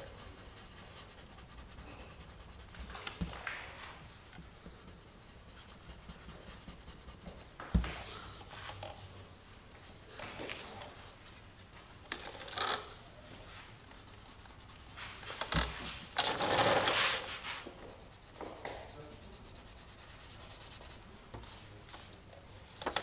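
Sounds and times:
sandpaper rubbing on car panel: 0:00.0 - 0:03.3, 0:04.9 - 0:07.5, 0:14.0 - 0:15.4, 0:17.4 - 0:21.0.

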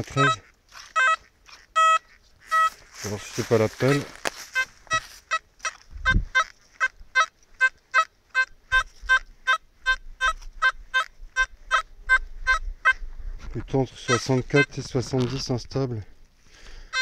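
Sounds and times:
metal detector beeping: 0:00.0 - 0:06.5.

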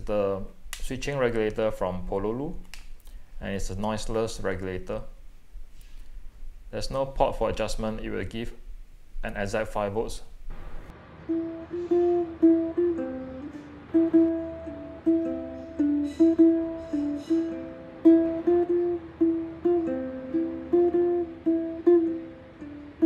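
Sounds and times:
plucked string instrument melody: 0:10.9 - 0:23.0.

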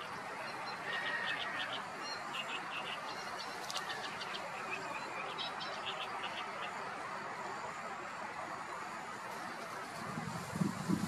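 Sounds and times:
small birds chirping: 0:00.0 - 0:07.0
background hiss: 0:00.0 - 0:11.0.

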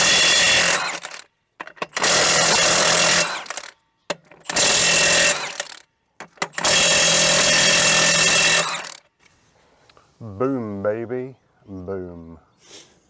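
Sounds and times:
impact wrench hammering: 0:00.0 - 0:09.0.

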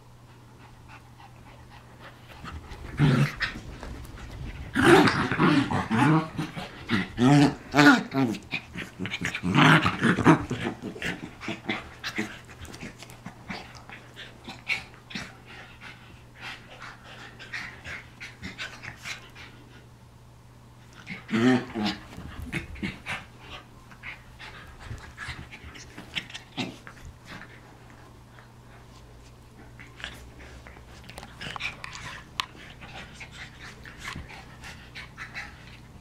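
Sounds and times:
dog growling: 0:02.4 - 0:15.4, 0:21.0 - 0:23.3
dogs panting: 0:21.9 - 0:36.0.

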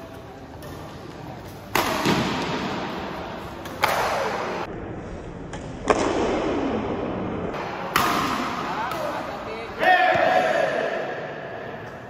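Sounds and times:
rackets striking shuttlecock: 0:00.5 - 0:04.5, 0:07.8 - 0:09.3.

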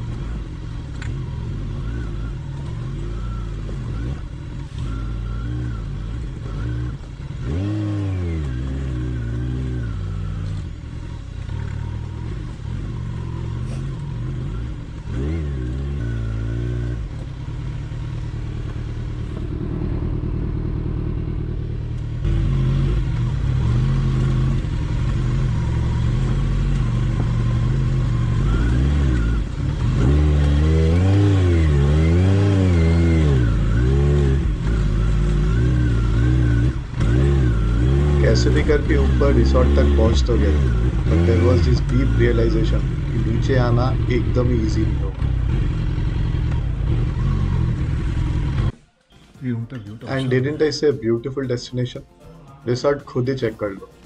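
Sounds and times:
motorcycle engine revving: 0:00.0 - 0:48.9.

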